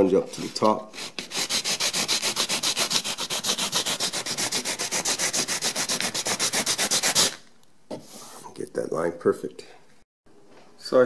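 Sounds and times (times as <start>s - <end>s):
sanding sponge rubbing wood: 0.4s - 7.4s.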